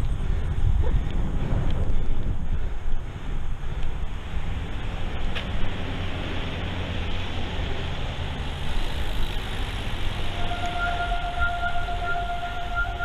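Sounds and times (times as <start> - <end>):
wind buffeting microphone: 0.0 - 8.1
road noise on wet asphalt: 0.0 - 13.0
steady high tone: 10.2 - 13.0.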